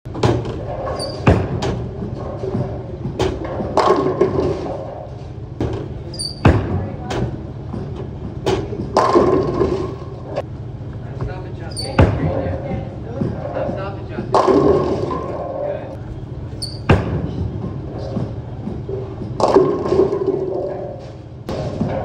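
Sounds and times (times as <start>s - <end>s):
sharp knocks echoing: 0.1s - 7.4s, 13.2s - 15.6s
bowling ball hitting pins: 0.1s - 10.4s, 13.2s - 15.7s, 16.8s - 22.0s
voices echoing: 5.8s - 19.5s.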